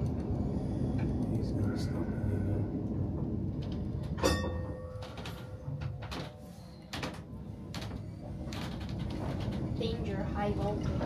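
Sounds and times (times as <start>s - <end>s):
low background rumble: 0.0s - 11.0s
ringing metallic clang: 4.2s - 5.8s.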